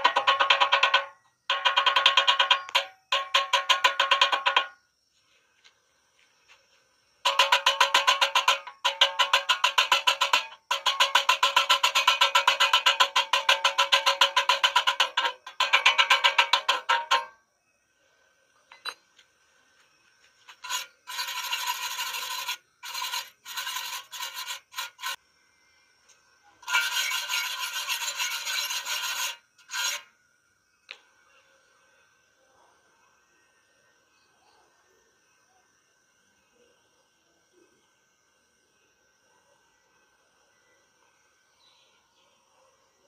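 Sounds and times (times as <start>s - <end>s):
wire brush scrubbing metal: 7.3s - 17.3s, 20.5s - 25.2s, 26.6s - 30.1s.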